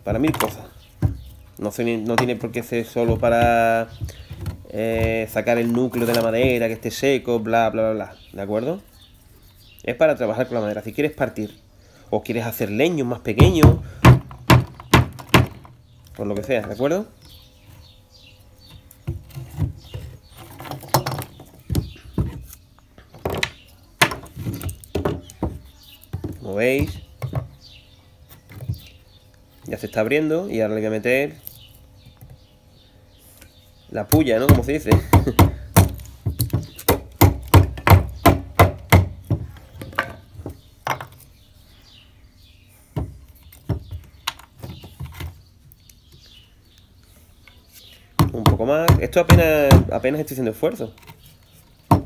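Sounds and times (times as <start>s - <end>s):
wood-on-wood knocks: 0.1s - 1.3s, 2.1s - 6.6s, 13.4s - 16.8s, 23.1s - 27.6s.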